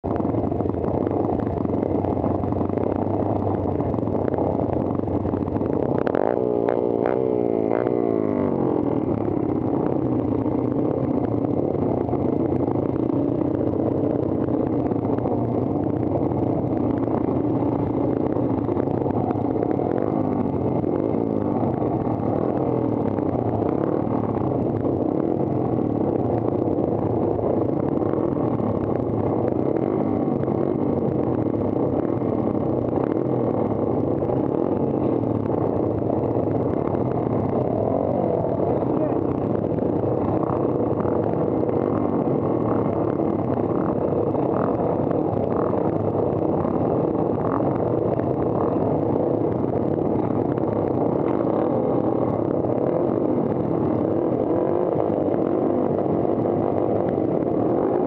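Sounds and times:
motorcycle engine revving: 0.0 - 58.0.

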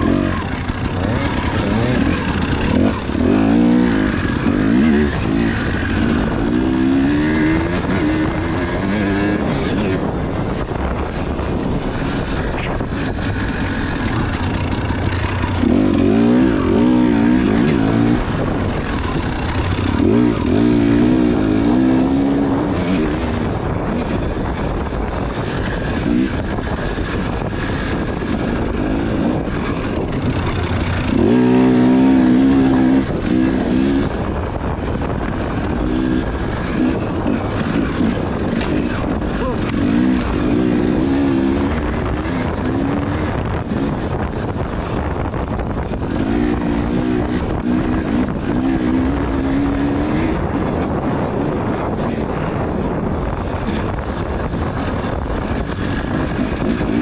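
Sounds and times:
dirt bike engine revving: 0.0 - 57.0
steady rushing noise: 0.0 - 57.0.

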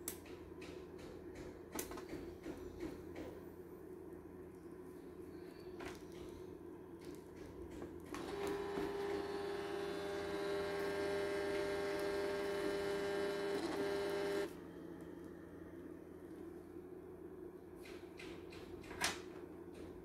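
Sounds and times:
thermal printer whine: 8.0 - 15.6.

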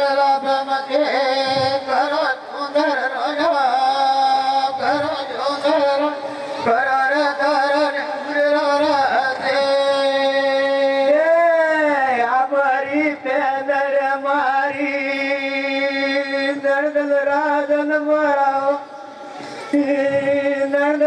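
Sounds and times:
person singing folk song: 0.0 - 21.0.

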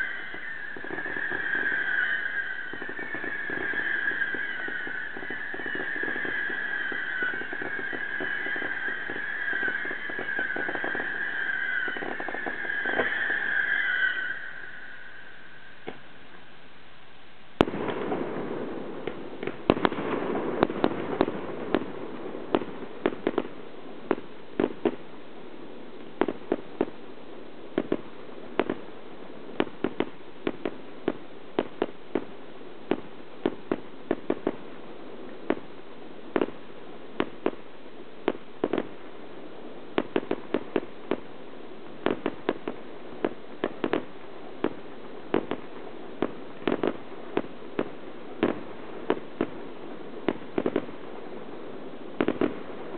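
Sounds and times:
firework shells bursting: 0.0 - 16.0
fireworks rushing noise: 0.0 - 16.5, 17.6 - 52.9.

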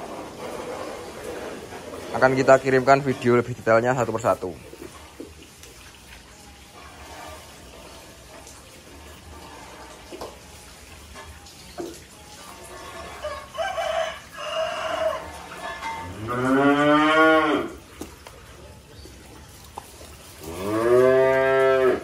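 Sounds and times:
cattle mooing: 15.1 - 17.8, 20.4 - 22.0.

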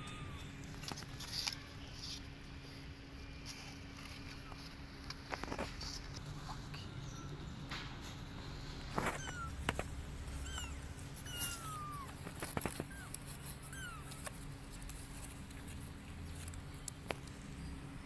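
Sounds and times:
kittens mewing: 0.0 - 2.2, 8.6 - 15.1
paws tapping on cardboard: 9.0 - 15.9.

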